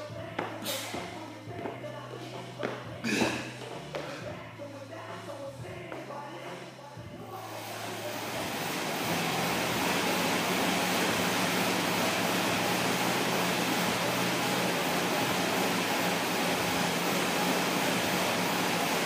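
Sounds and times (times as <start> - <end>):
air bike fan whooshing: 0.0 - 1.5, 7.2 - 19.0.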